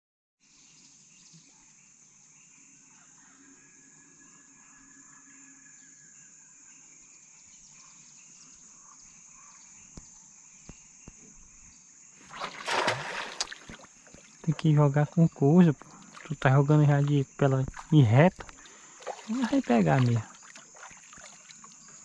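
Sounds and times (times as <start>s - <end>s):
high-pitched insect drone: 2.3s - 9.8s
bird calls: 8.7s - 22.0s.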